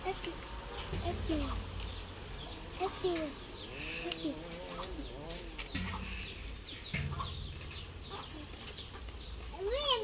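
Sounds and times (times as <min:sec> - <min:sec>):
chickens clucking: 0:00.0 - 0:10.0.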